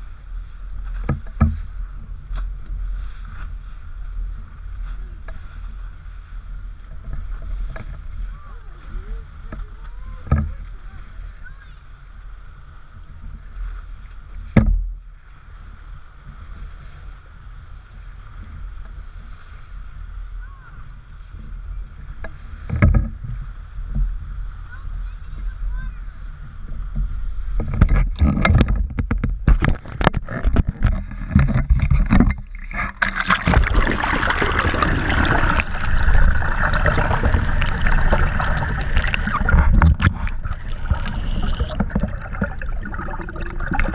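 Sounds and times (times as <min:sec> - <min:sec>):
wind and water against hull: 0:00.0 - 0:43.9
underwater rushing bubbling water: 0:29.5 - 0:43.9
water splashing hard: 0:30.2 - 0:43.9.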